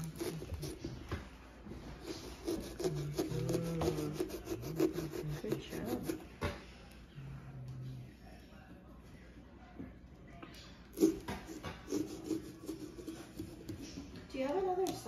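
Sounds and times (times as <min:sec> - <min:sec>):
saw rasping through pumpkin rind: 0:00.0 - 0:01.0, 0:01.8 - 0:06.3, 0:10.9 - 0:13.8.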